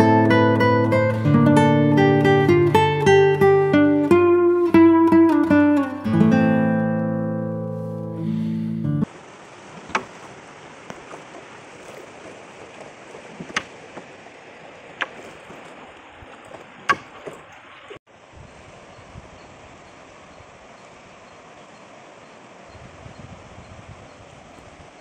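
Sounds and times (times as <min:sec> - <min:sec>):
acoustic guitar music: 0:00.0 - 0:09.1
river water rushing: 0:09.0 - 0:25.0
sharp knocks: 0:09.8 - 0:10.3, 0:13.4 - 0:13.8, 0:16.8 - 0:17.4.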